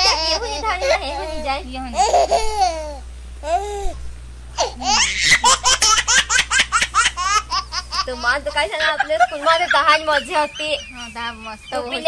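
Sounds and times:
people laughing: 8.0 - 12.0.

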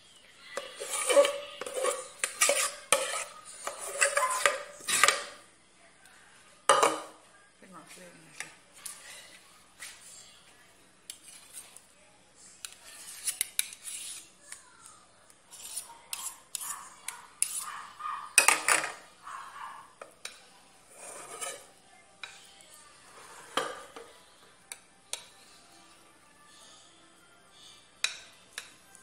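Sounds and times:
spoon scraping glass dish: 0.6 - 5.2, 12.6 - 14.2, 15.5 - 19.6, 20.9 - 21.7.

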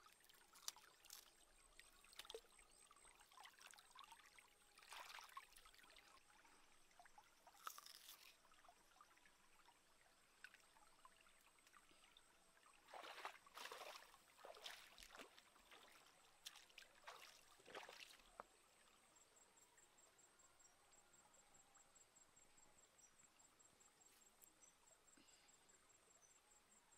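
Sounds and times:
soft water splashes: 0.0 - 19.2
stream trickling over rocks: 0.0 - 20.0.

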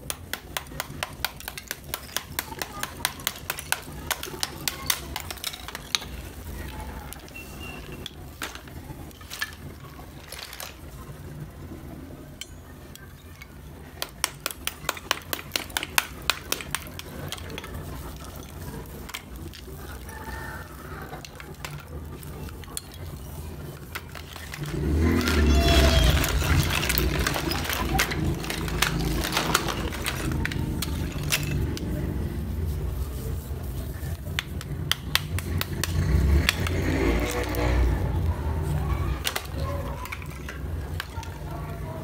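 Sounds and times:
small hammer tapping clay: 0.0 - 6.1, 14.0 - 17.7, 34.4 - 36.9.

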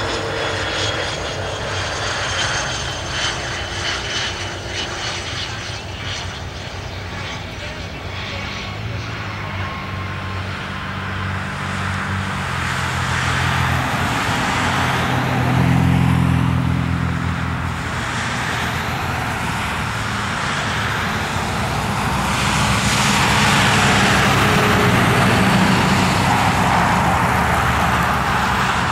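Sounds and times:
traffic noise: 7.4 - 28.9.

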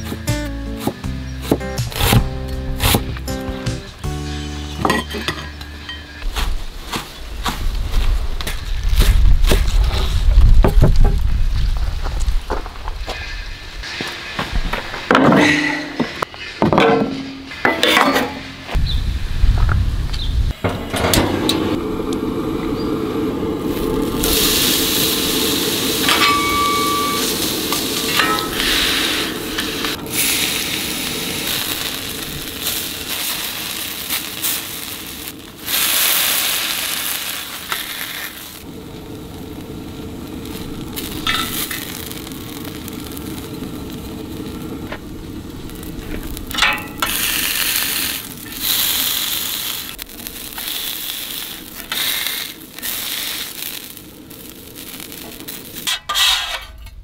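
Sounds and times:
squid sizzling on a griddle: 21.6 - 56.5
metal spatula scraping: 55.8 - 57.0.

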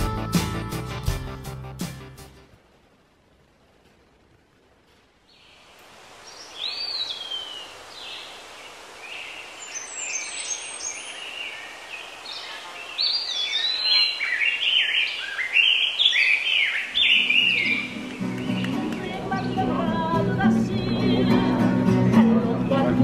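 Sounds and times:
music: 0.0 - 2.5, 17.5 - 23.0
songbirds chirping and whistling: 6.3 - 21.6.

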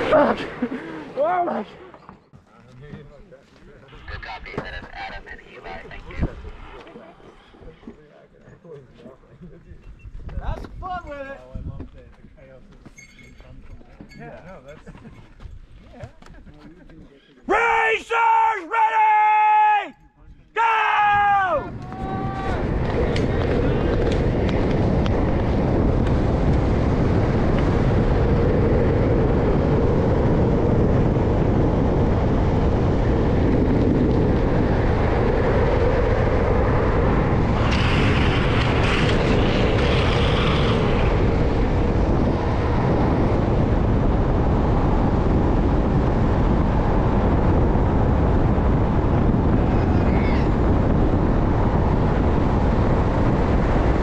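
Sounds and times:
wind rushing over microphone: 0.0 - 2.1, 3.8 - 8.3, 9.6 - 12.6, 17.5 - 54.0
skateboard wheels rolling on asphalt: 21.2 - 54.0.

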